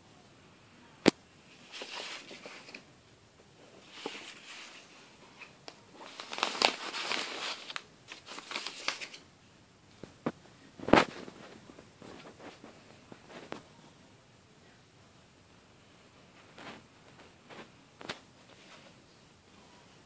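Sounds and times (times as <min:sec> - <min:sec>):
paper rustling and sliding: 0:01.5 - 0:02.9, 0:03.7 - 0:09.2.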